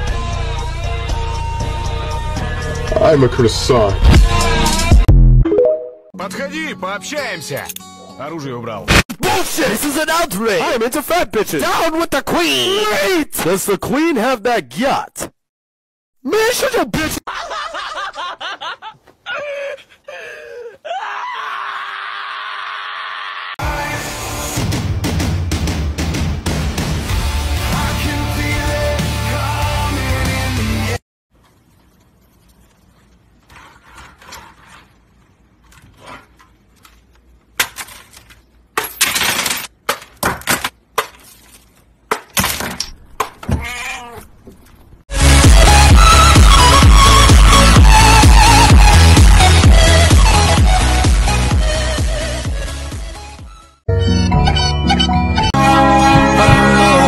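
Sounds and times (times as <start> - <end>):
man laughing: 17.0 - 23.6
objects crashing onto desk: 37.5 - 43.6
electronic dance music: 45.1 - 52.8.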